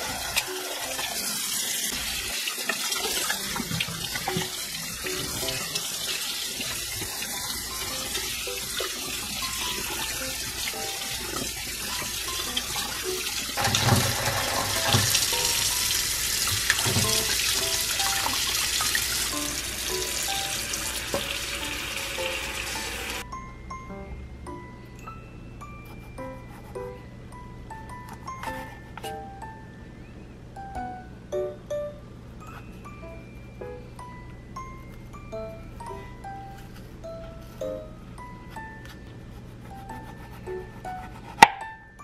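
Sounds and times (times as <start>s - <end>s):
faucet running water: 0.0s - 23.2s.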